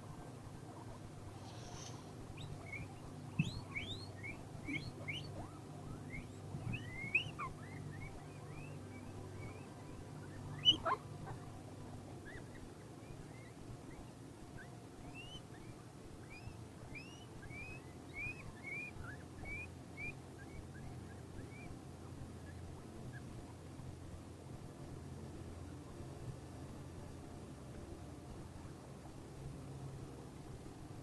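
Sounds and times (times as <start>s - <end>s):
guinea pigs squeaking: 0.7s - 11.5s, 12.2s - 21.8s, 22.4s - 23.4s.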